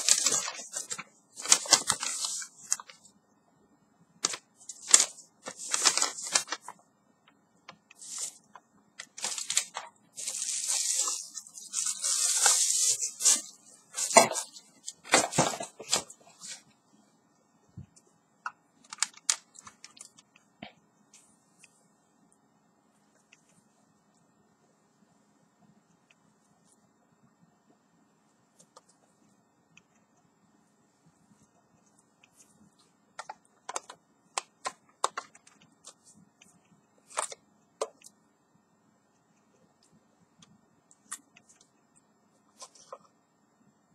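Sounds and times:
packaging rustling: 0:00.0 - 0:03.1, 0:04.2 - 0:06.8, 0:08.0 - 0:16.6, 0:18.8 - 0:20.2.

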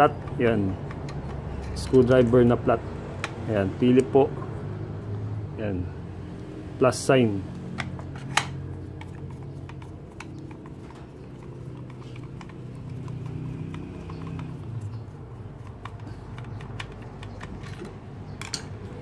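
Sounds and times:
screwdriver clicking on plastic: 0:15.6 - 0:17.8.

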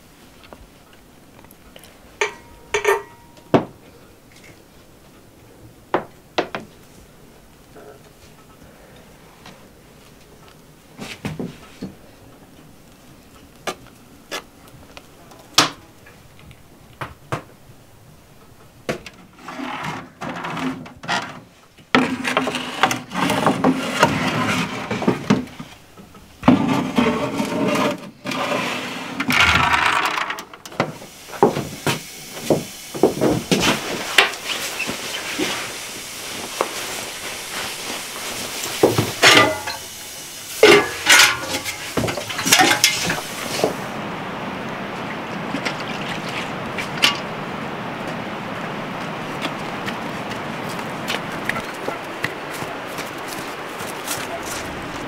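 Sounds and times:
spoon tapping metal tray: 0:02.2 - 0:03.2
tray scraping into oven: 0:26.5 - 0:30.4
small knocks and bumps: 0:29.3 - 0:35.6, 0:38.7 - 0:39.8
mug clattering into bucket: 0:38.8 - 0:39.8.

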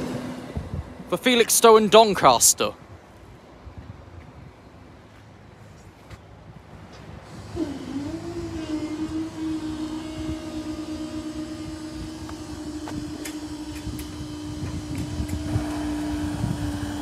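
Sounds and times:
wind rumble on microphone: 0:00.0 - 0:01.1, 0:02.8 - 0:17.0
barrier motor humming: 0:06.9 - 0:17.0.

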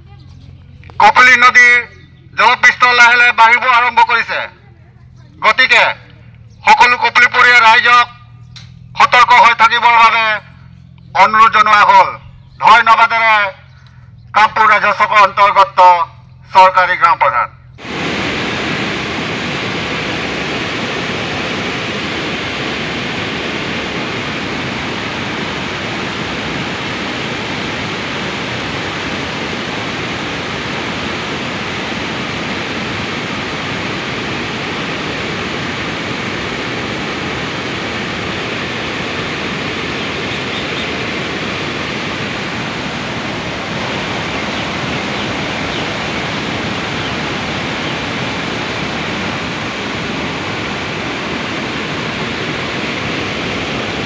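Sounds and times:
water rushing through spillway: 0:17.8 - 0:54.0.

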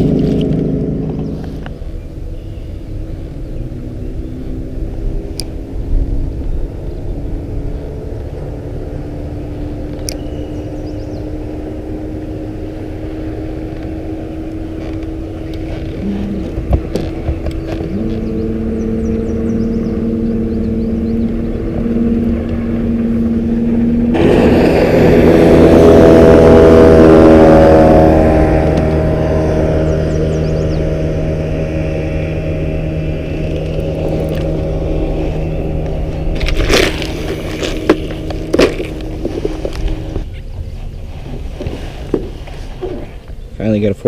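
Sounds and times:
motorboat speeding past: 0:00.0 - 0:43.9
outboard engine humming: 0:00.0 - 0:44.0.

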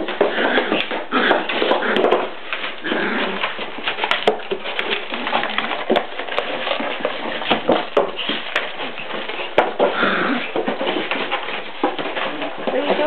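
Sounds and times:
cardboard box scraping on tile: 0:00.0 - 0:13.0.

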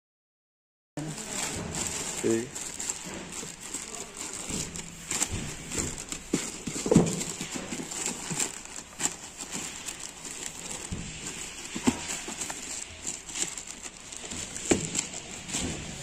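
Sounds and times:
plastic bag crinkling and tearing: 0:01.0 - 0:16.0
sharp crackles and knocks: 0:01.2 - 0:16.0.

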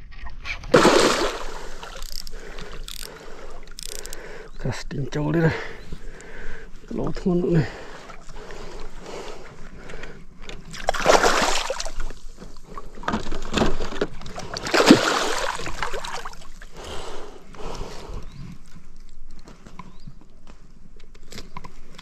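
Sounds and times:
fish thrashing and splashing water: 0:00.7 - 0:03.2, 0:10.7 - 0:12.3, 0:13.1 - 0:16.6.

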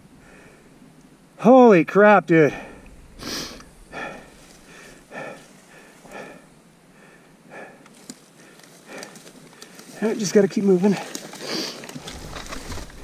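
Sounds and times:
man breathing hard: 0:00.0 - 0:00.8, 0:02.5 - 0:09.9.

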